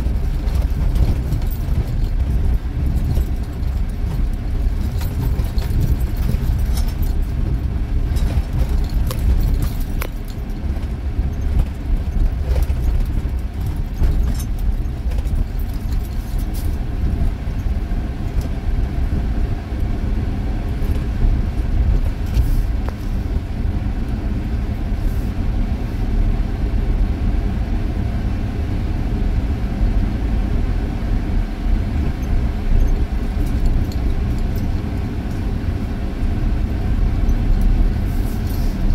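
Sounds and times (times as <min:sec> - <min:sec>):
light clicks and rattles: 0:00.0 - 0:18.6, 0:32.2 - 0:35.5
engine and tyre rumble: 0:00.0 - 0:38.9.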